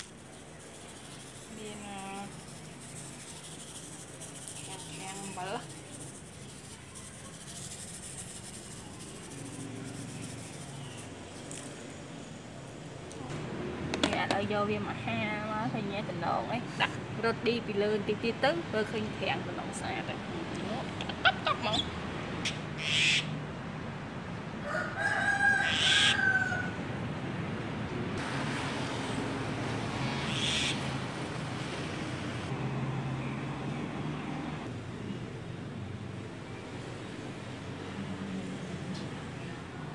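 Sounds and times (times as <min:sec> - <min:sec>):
rooster crowing: 0:24.6 - 0:27.0.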